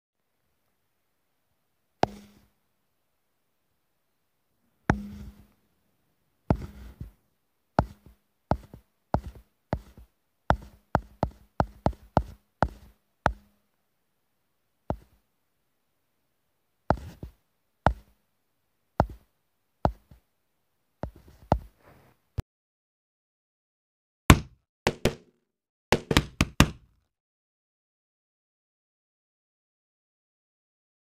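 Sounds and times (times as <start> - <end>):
ball bouncing down hard steps: 4.9 - 5.5, 7.8 - 13.5, 16.9 - 18.1, 24.3 - 25.3, 25.9 - 26.9.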